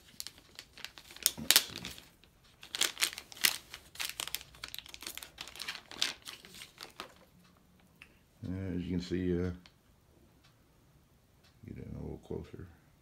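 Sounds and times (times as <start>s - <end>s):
plastic sleeve crinkling: 0.0s - 7.3s.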